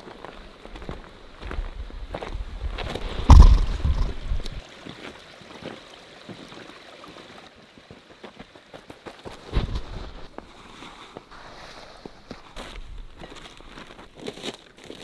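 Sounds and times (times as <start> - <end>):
footsteps on rocky trail: 0.0 - 6.4, 7.8 - 15.0
low rumble with thump: 3.3 - 4.6.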